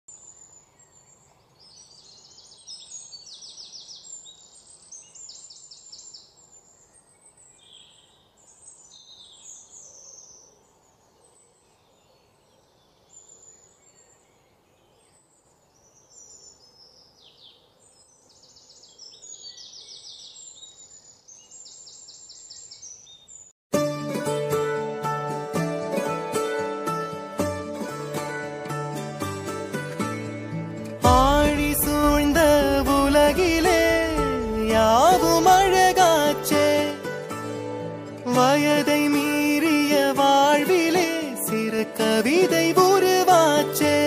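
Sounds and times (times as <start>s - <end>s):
songbirds chirping: 0.1s - 23.6s.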